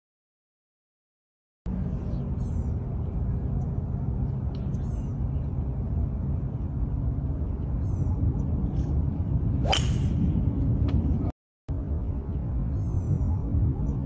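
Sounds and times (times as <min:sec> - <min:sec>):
low outdoor rumble: 0:01.7 - 0:14.0
club striking ball crack: 0:09.6 - 0:10.2
golf club swish: 0:09.6 - 0:10.2.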